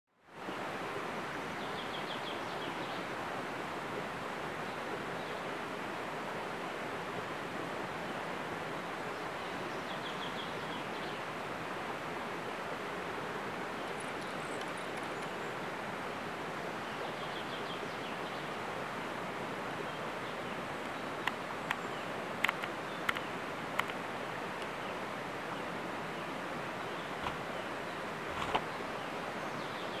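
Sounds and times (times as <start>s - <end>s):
steady forest hiss: 0.2s - 30.0s
sharp clicks or snaps: 22.4s - 24.0s.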